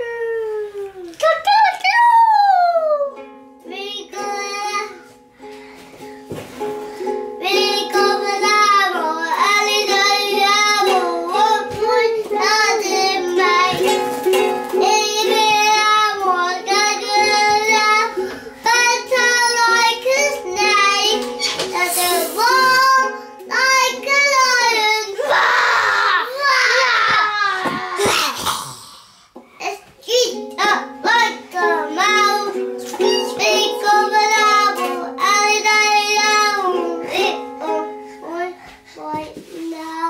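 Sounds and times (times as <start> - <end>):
toy ukulele strummed: 7.4 - 18.1, 30.5 - 37.9
child singing loudly: 21.8 - 28.4.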